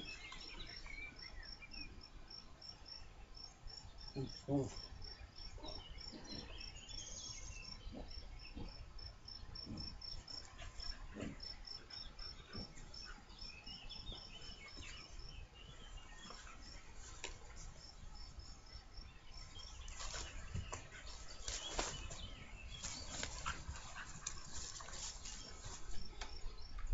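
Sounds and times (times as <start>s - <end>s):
rustling in grass: 19.6s - 26.1s.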